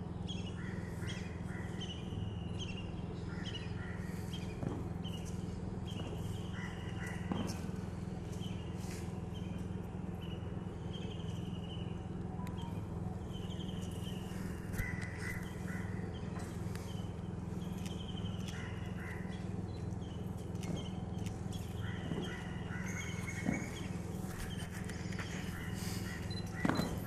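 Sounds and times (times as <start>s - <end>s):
steady low hum: 0.0s - 27.0s
birds calling in falling notes: 0.1s - 27.0s.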